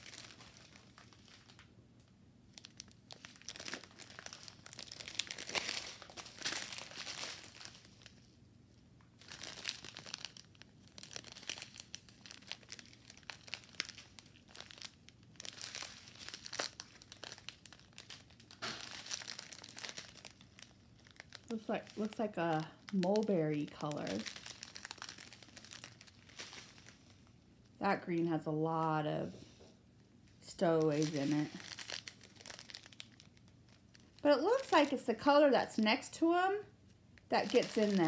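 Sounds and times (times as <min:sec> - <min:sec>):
plastic bags crinkling: 0:00.0 - 0:01.7, 0:02.5 - 0:08.3, 0:09.2 - 0:27.4, 0:30.5 - 0:35.3, 0:37.2 - 0:38.0.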